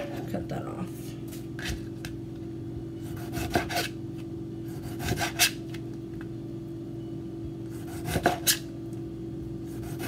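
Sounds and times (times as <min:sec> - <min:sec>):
steady hum: 0:00.0 - 0:10.0
knife slicing tomato: 0:03.1 - 0:04.0, 0:04.7 - 0:05.6, 0:07.8 - 0:08.7.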